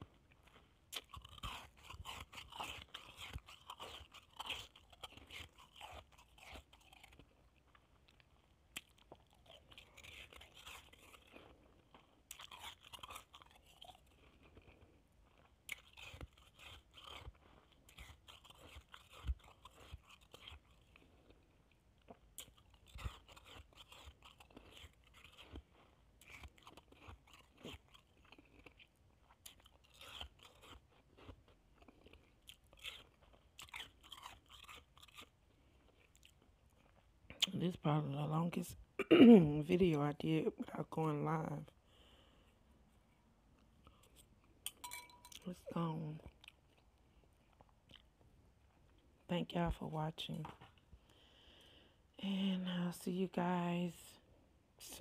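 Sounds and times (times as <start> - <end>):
person chewing shaved ice: 0.0 - 38.3, 43.6 - 49.3.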